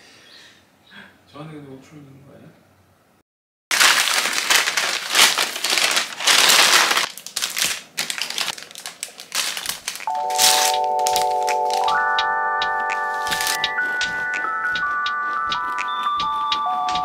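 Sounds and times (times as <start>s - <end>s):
crinkling and crackling: 3.7s - 12.0s
gentle chiming melody: 10.1s - 17.0s.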